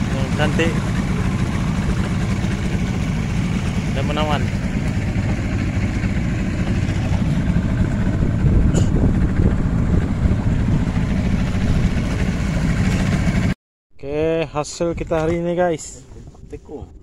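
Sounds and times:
outboard motor droning: 0:00.0 - 0:13.6
water noise: 0:00.0 - 0:13.6
wind noise: 0:06.7 - 0:13.1.

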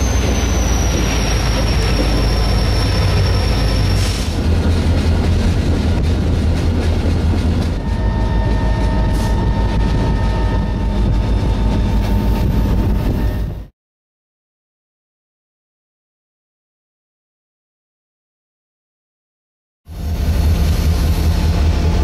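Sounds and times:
train wheels rumbling on rails: 0:00.0 - 0:13.7, 0:19.9 - 0:22.0.

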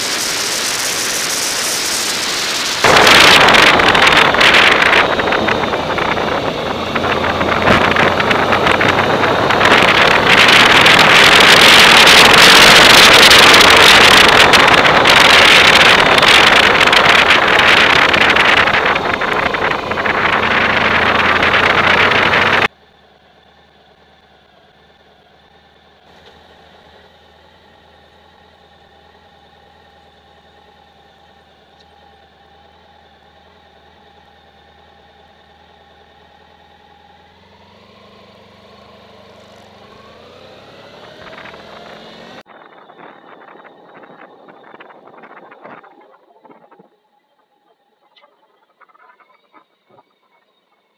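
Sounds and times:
wind on microphone: 0:00.0 - 0:22.7, 0:41.0 - 0:47.0.

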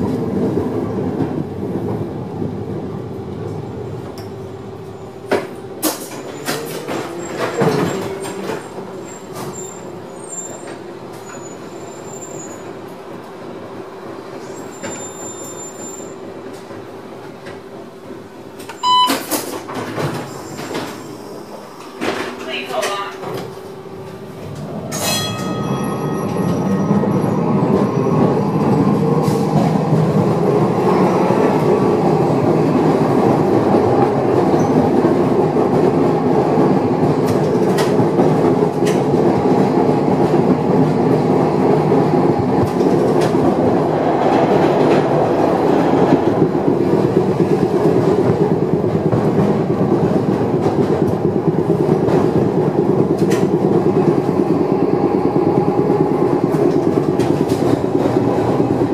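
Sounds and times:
streetcar wheels rumbling on rails: 0:00.0 - 0:58.9
bell ringing strike: 0:24.9 - 0:26.5.

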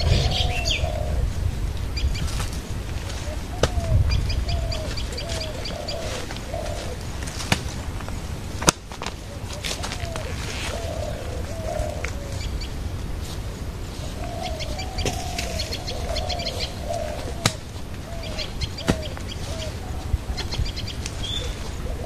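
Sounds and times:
high bird chirping: 0:00.0 - 0:01.2, 0:14.2 - 0:21.6
low cooing bird: 0:00.0 - 0:08.4, 0:09.2 - 0:22.0.

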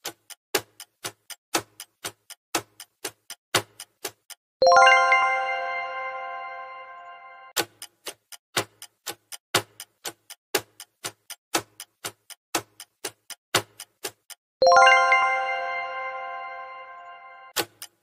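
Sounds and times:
countdown timer ticking: 0:00.0 - 0:18.0
chime ringing: 0:04.6 - 0:07.5, 0:14.6 - 0:17.5.

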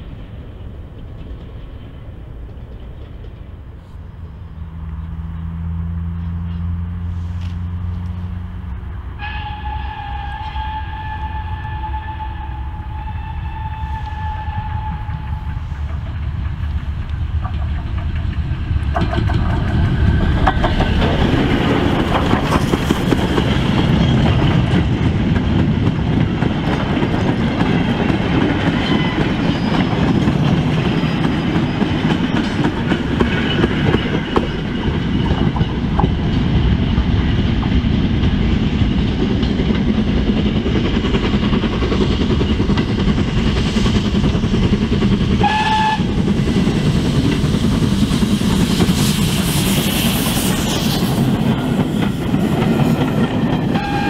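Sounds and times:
train rumbling on track: 0:00.0 - 0:54.0
train whistle: 0:09.2 - 0:15.8, 0:45.4 - 0:46.2, 0:53.7 - 0:54.0
wheels clicking over rails: 0:15.4 - 0:49.0.

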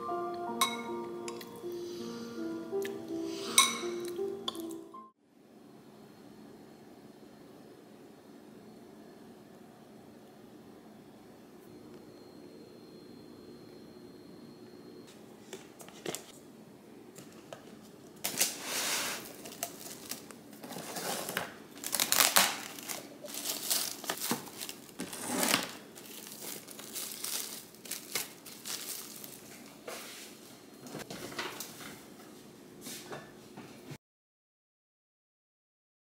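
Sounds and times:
plastic film crinkling: 0:19.2 - 0:29.9.

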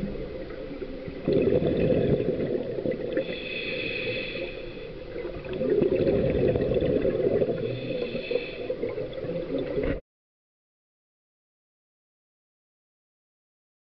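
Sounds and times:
underwater air bubbling: 0:00.0 - 0:10.0.

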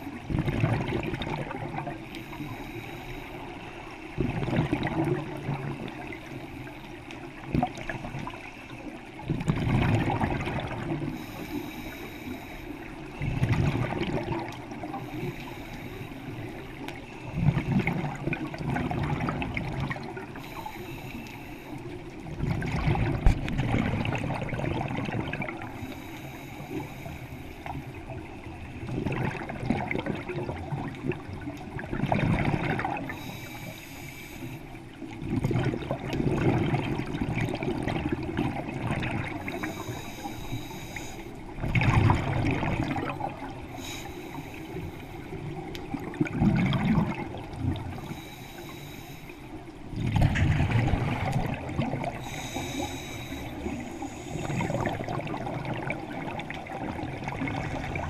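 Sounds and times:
exhaled bubbles underwater: 0:00.0 - 0:02.6, 0:04.0 - 0:12.0, 0:12.8 - 0:34.1, 0:34.8 - 0:49.0, 0:49.6 - 0:58.0
regulator inhalation hiss: 0:11.2 - 0:12.9, 0:15.0 - 0:16.6, 0:20.4 - 0:21.8, 0:25.8 - 0:27.8, 0:33.1 - 0:34.7, 0:39.5 - 0:41.4, 0:43.7 - 0:45.3, 0:48.0 - 0:49.5, 0:52.2 - 0:54.8.

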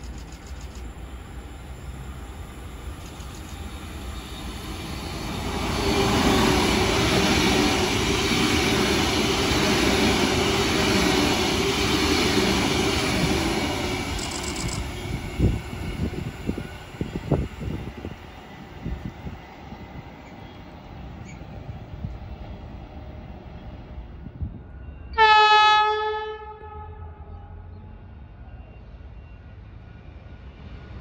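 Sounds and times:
wheels rolling on rail: 0:00.0 - 0:25.0
electric train passing: 0:00.0 - 0:31.0.

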